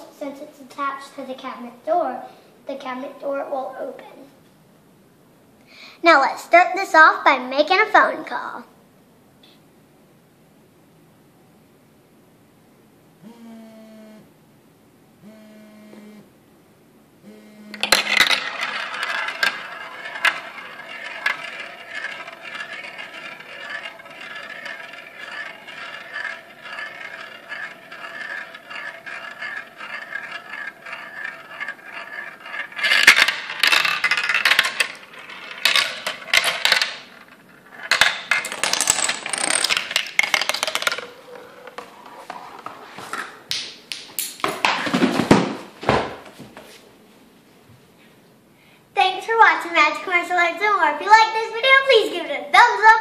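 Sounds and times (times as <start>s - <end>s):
mobile phone vibrating: 13.2s - 14.3s, 15.2s - 16.3s, 17.2s - 17.9s
marble rolling down plastic run: 17.7s - 43.3s
wooden blocks toppling: 17.8s - 46.4s.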